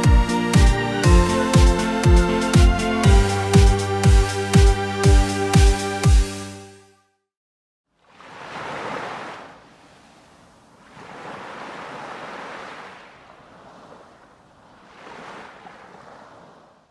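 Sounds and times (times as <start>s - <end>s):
waves breaking alongside boat: 8.0s - 16.9s.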